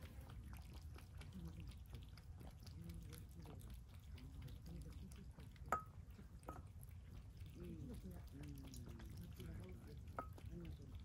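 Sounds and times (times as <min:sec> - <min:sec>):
cats chewing wet food: 0:00.0 - 0:11.0
bowl clinking: 0:05.7 - 0:06.7, 0:10.1 - 0:10.5.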